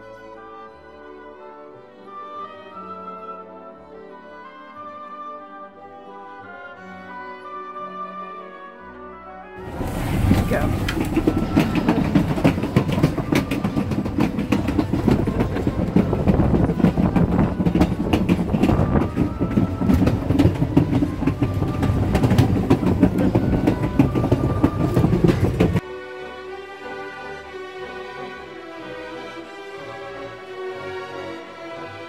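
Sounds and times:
orchestral music: 0.0s - 32.0s
train car rumbling on track: 9.6s - 25.8s
wheel squeal: 9.6s - 25.8s
wheels clacking over rail joints: 9.6s - 25.8s.

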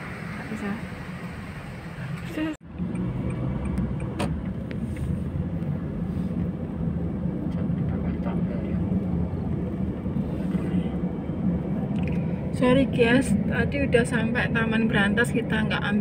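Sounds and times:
car engine and tyre rumble: 0.0s - 16.0s.

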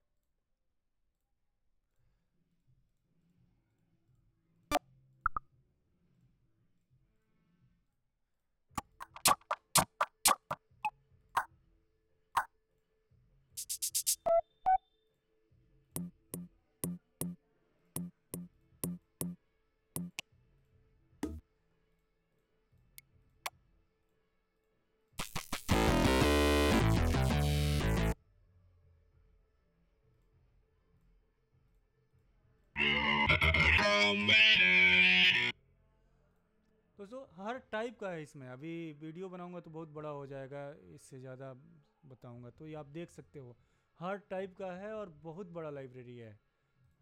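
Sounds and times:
evenly spaced beats: 8.8s - 10.6s, 13.6s - 14.3s, 16.0s - 17.4s, 18.0s - 19.4s, 20.0s - 20.2s
dense synth loop: 16.0s - 17.4s, 18.0s - 19.4s, 20.0s - 20.2s, 25.2s - 28.2s
percussive drum hits: 16.0s - 17.4s.

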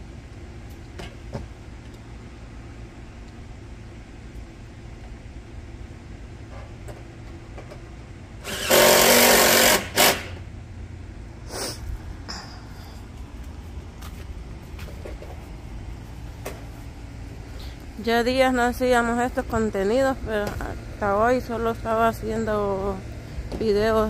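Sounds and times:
power drill running: 8.4s - 10.4s.

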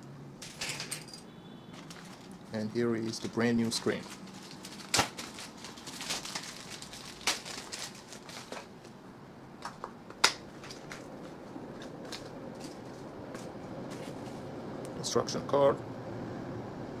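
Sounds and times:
plastic bag crinkling: 1.7s - 9.0s.

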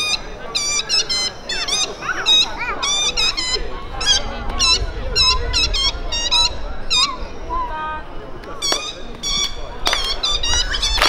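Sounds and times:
squeaky horn honks: 8.6s - 11.0s.

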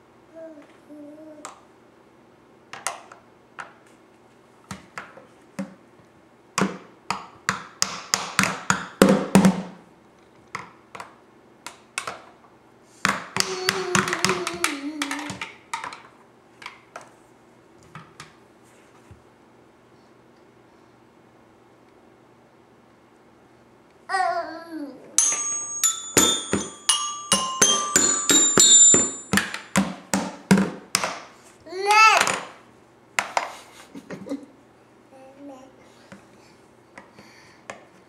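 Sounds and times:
plastic toy drum beats: 25.2s - 31.2s.

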